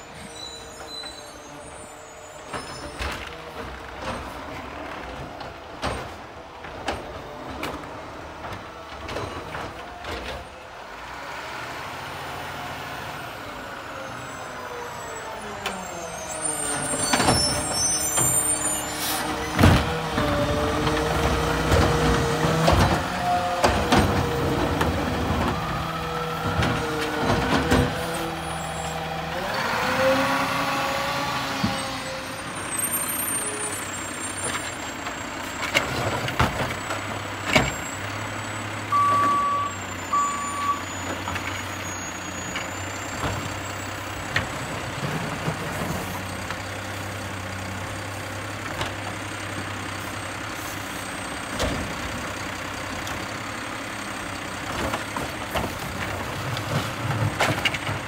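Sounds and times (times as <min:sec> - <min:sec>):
garbage truck engine revving: 0:16.6 - 0:39.0
trash cart banging: 0:16.8 - 0:28.9, 0:34.3 - 0:38.2, 0:54.6 - 0:58.0.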